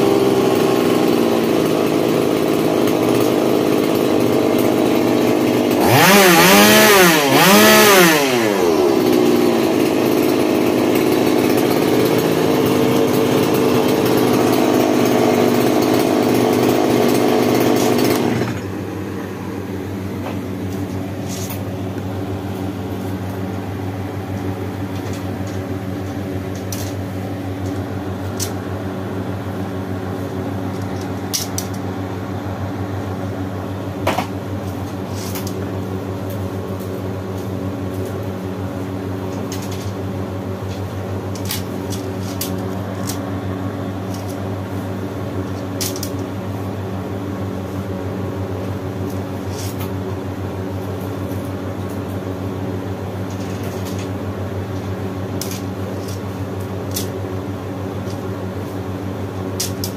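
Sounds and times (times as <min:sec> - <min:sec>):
low mechanical hum: 0:00.0 - 0:59.9.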